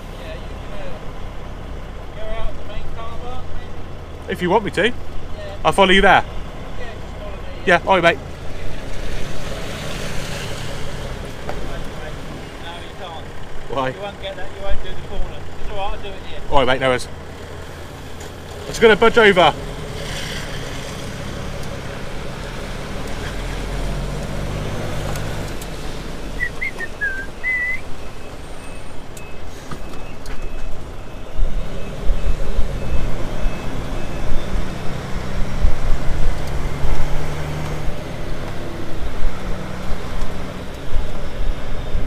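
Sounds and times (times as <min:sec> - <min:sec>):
lorry diesel engine running: 0:00.0 - 0:42.0
reversing alarm beeping: 0:26.4 - 0:34.9.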